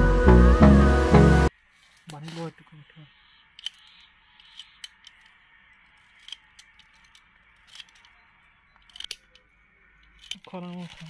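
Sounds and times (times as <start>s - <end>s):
pruning shears snipping twigs: 1.9s - 2.5s, 8.8s - 11.0s.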